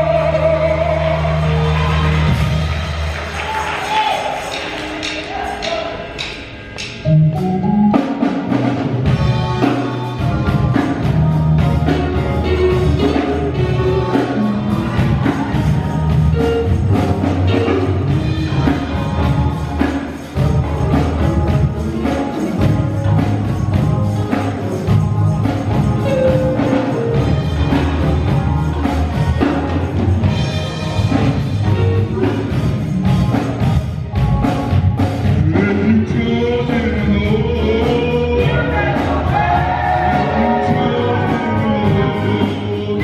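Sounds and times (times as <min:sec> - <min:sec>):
gospel band playing: 0:00.0 - 0:43.0
choir clapping along: 0:00.4 - 0:07.0, 0:38.5 - 0:41.6.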